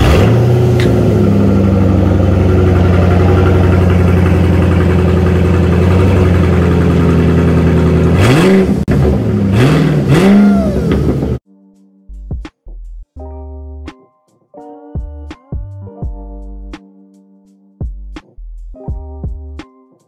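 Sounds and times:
car engine revving: 0.0s - 11.4s
loud car engine idling: 0.0s - 11.4s.

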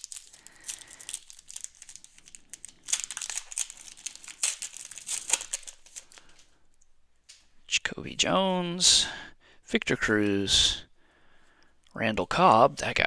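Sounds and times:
plastic wrapper crinkling and tearing: 0.0s - 6.9s.

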